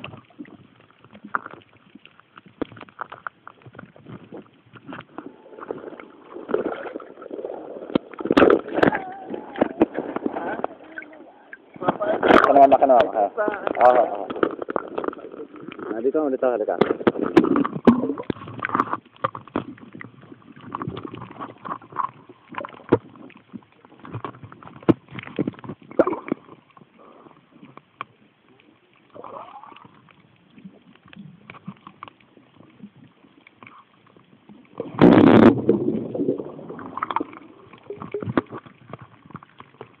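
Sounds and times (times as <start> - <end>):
underwater gurgling and sloshing: 0.0 - 40.0
loud underwater rush: 5.0 - 15.9, 34.7 - 38.9.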